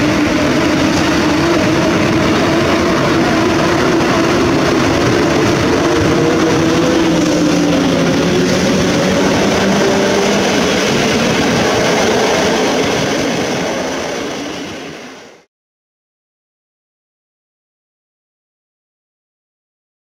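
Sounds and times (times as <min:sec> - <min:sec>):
train wheels rumbling on rail: 0:00.0 - 0:15.5.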